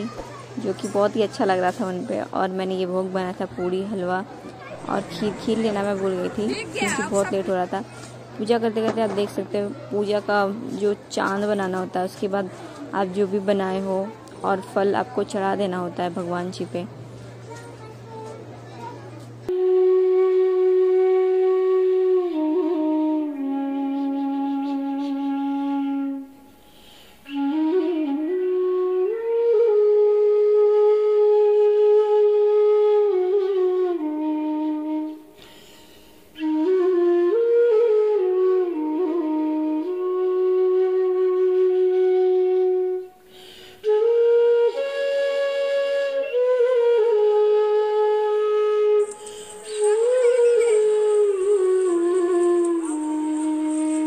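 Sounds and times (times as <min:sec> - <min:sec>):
slow solo flute melody: 0:19.5 - 0:54.0.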